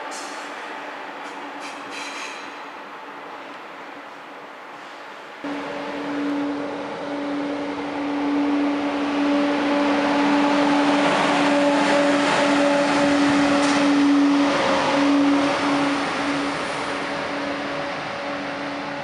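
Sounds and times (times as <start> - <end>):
train rolling noise: 0.0 - 19.0
train power car droning tone: 5.4 - 19.0.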